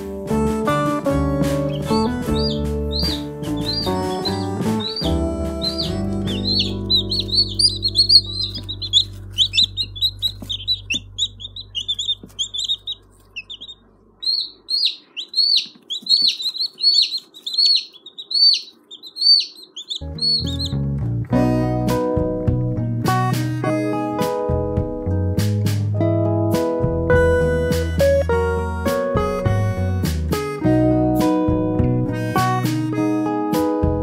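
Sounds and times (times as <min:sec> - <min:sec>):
background music: 0:00.0 - 0:12.7, 0:20.0 - 0:34.0
chicks peeping: 0:01.2 - 0:21.0.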